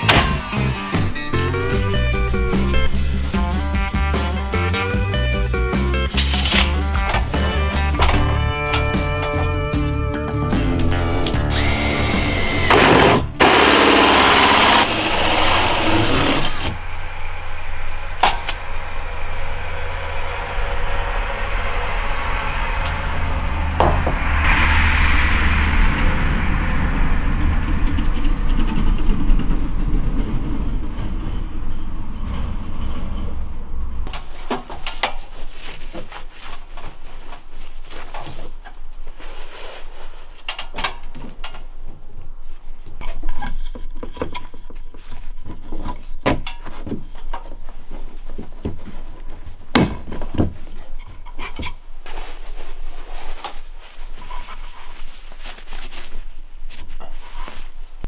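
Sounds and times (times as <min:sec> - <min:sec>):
background music: 0:00.0 - 0:16.6
low hum: 0:00.0 - 0:34.3
cordless drill drilling: 0:11.5 - 0:16.7.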